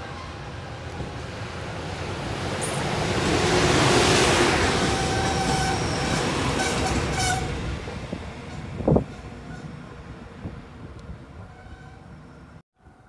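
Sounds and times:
train wheels rushing on rail: 0.0 - 11.6
train machinery whine: 2.6 - 8.6.

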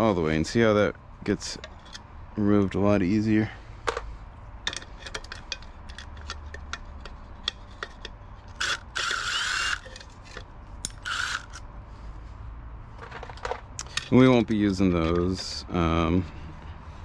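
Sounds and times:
metal clicks of wrench and bolts: 4.6 - 11.6
cordless driver whirring: 8.5 - 11.7.

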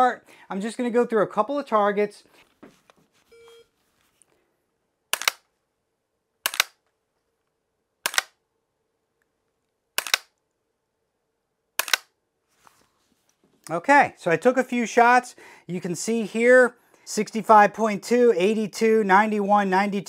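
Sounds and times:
short electronic beep: 3.3 - 3.7
gun dry-fire clicks: 5.1 - 5.5, 6.4 - 6.8, 8.0 - 8.4, 10.0 - 10.4, 11.8 - 12.1.

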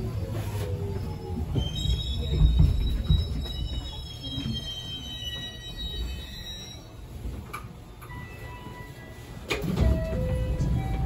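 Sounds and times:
train running rumble: 0.0 - 4.7
wheels and brakes squealing: 0.4 - 7.1.

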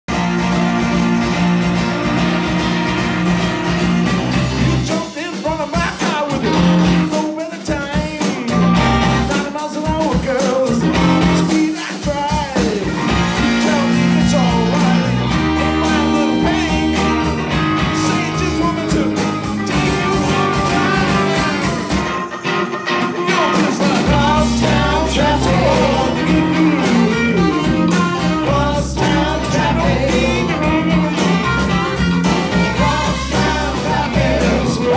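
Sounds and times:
drums: 0.0 - 34.9
electric guitar: 0.1 - 34.9
woman singing: 23.6 - 31.1.

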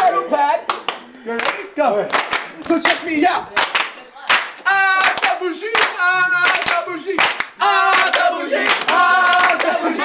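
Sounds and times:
loud hand clapping: 0.6 - 9.8
young people singing a chant: 4.6 - 10.0.

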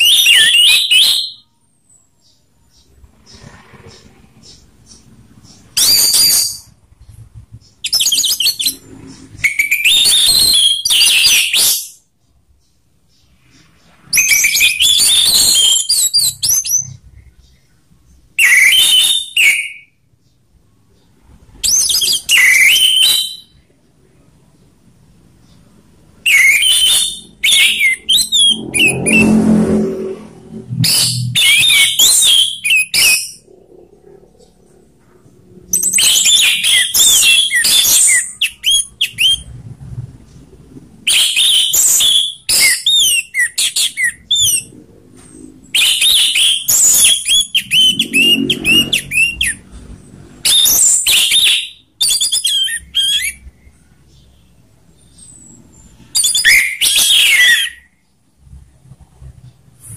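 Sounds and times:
thrush singing whistled phrases: 0.0 - 1.5, 5.6 - 6.8, 7.8 - 12.0, 14.1 - 17.0, 18.4 - 20.0, 21.6 - 23.7, 26.2 - 29.5, 30.7 - 33.5, 35.7 - 39.7, 41.0 - 44.7, 45.7 - 49.6, 50.4 - 54.2, 55.1 - 57.9.

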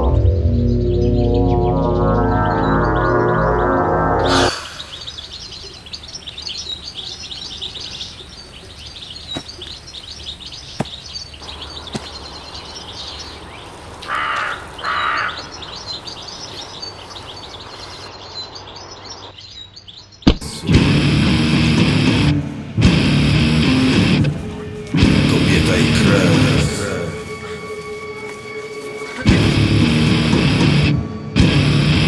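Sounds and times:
small birds chirping: 0.1 - 20.7, 22.3 - 30.2
loud harsh bird calls: 0.6 - 20.3.

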